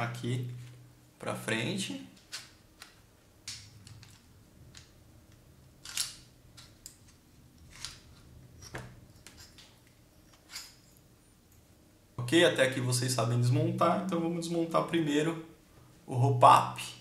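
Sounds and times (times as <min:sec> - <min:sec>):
toy pistol parts clicking: 0:05.8 - 0:07.0.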